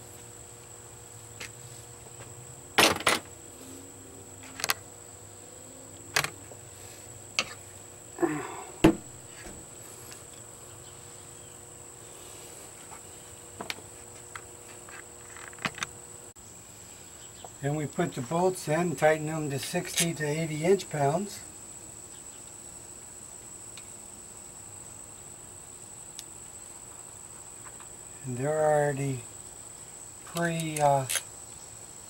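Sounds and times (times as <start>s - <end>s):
high-pitched insect drone: 0.0s - 32.0s.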